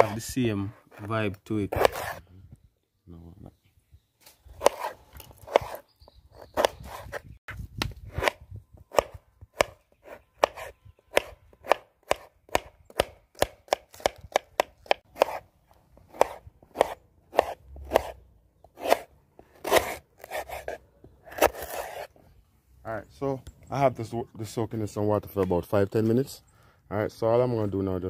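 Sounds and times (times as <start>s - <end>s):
knife slicing on cutting board: 1.7s - 2.2s, 4.6s - 5.8s, 15.2s - 15.4s, 16.1s - 18.2s, 18.8s - 22.1s.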